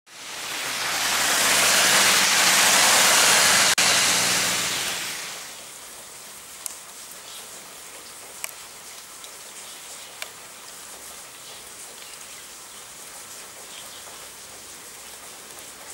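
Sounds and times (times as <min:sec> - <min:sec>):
steady rain: 0:00.1 - 0:15.9
tyres hissing through water: 0:00.1 - 0:15.9
faint raindrop ticks: 0:05.9 - 0:15.9.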